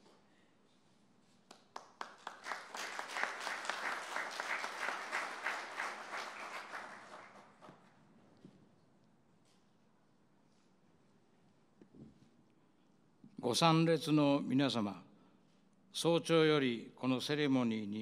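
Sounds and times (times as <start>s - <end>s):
small audience applauding: 1.5s - 8.0s.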